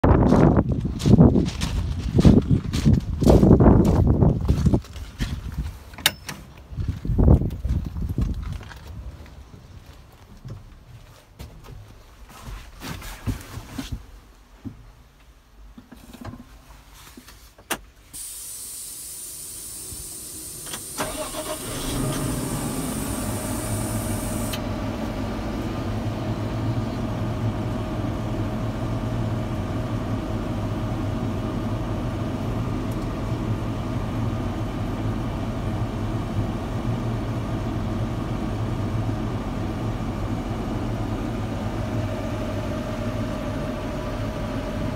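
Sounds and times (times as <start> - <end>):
high steady hiss: 18.0 - 24.6
diesel tractor engine idling: 18.2 - 44.9.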